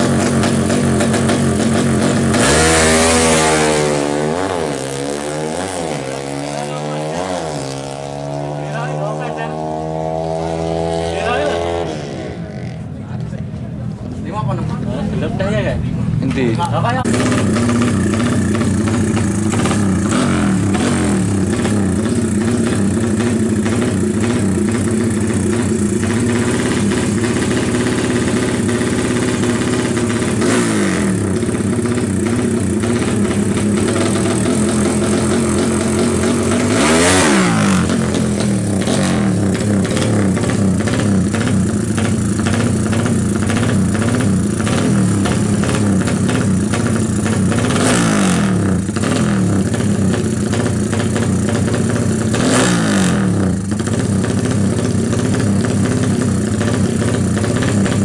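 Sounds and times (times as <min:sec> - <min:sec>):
motorcycle engine idling with revs: 0:00.0 - 0:58.0.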